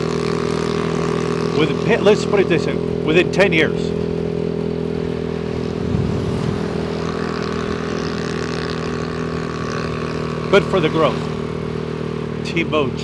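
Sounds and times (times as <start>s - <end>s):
road and traffic noise: 0.0s - 13.0s
scooter engine running: 0.0s - 13.0s
low rumble: 5.2s - 7.9s.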